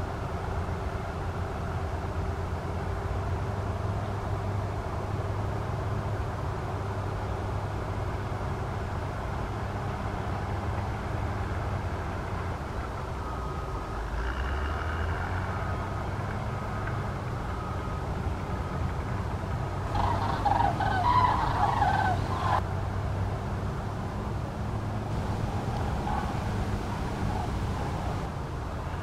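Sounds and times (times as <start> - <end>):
low background rumble: 18.3 - 29.0
cranes bugling: 19.9 - 22.6, 25.1 - 29.0.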